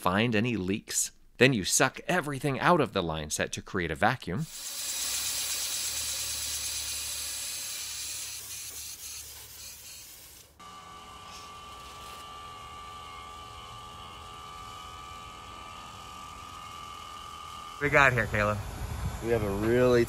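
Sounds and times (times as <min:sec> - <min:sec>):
gas hissing from valve: 0:04.4 - 0:10.6
vacuum pump whining: 0:10.6 - 0:20.0.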